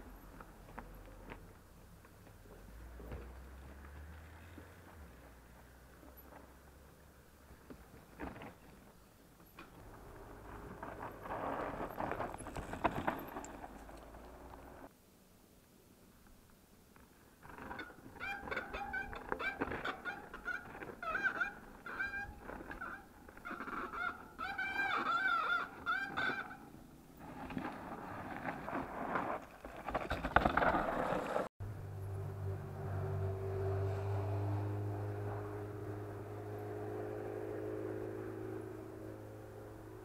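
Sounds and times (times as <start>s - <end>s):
bike rattling over roots and rocks: 7.6s - 14.8s, 27.1s - 31.5s.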